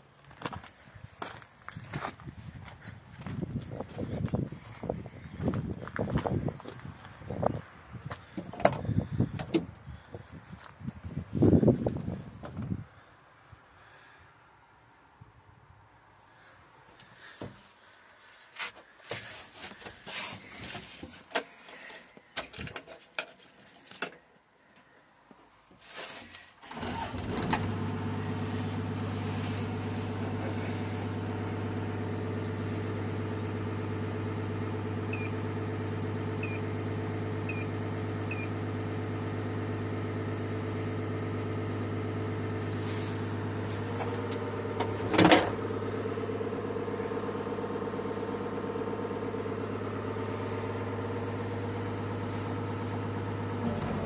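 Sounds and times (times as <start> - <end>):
diesel engine idling: 26.7 - 54.0
short electronic beeps: 36.4 - 36.6, 37.5 - 37.7, 38.3 - 38.5.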